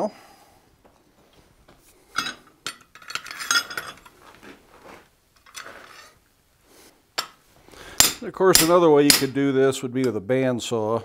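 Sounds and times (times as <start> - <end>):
metal tools clanking on anvil: 2.1 - 4.1.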